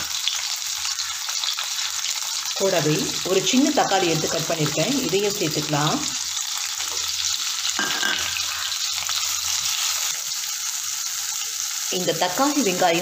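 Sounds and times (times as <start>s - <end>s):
vegetables sizzling in hot oil: 0.0s - 13.0s.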